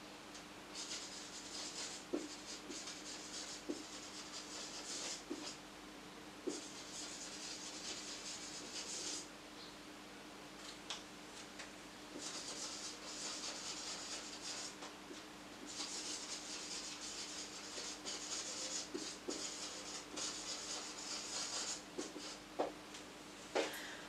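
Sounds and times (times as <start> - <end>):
marker writing on whiteboard: 0.8 - 5.6, 6.4 - 9.3, 12.2 - 14.8, 15.6 - 22.7.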